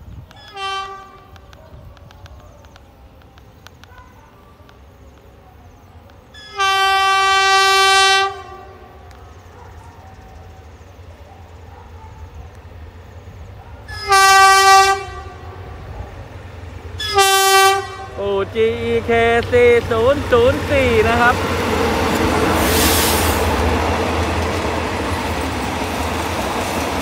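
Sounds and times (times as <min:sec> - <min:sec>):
low rumble of oncoming train: 0:00.0 - 0:27.0
locomotive horn blasts: 0:00.4 - 0:01.4, 0:06.4 - 0:09.0, 0:13.9 - 0:15.7, 0:17.0 - 0:18.2.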